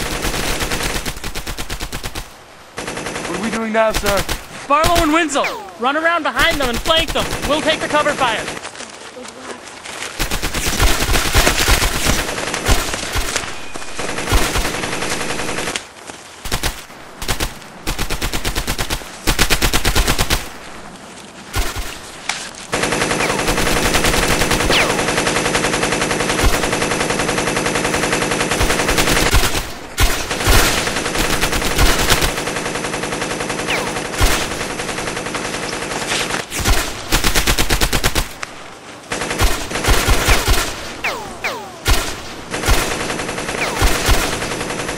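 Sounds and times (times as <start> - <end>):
machine-gun fire bursts: 0.0 - 5.2, 6.4 - 8.6, 10.2 - 15.8, 16.4 - 20.6, 22.7 - 38.4, 39.1 - 44.9
single gunshots: 23.2 - 25.3, 39.4 - 44.6.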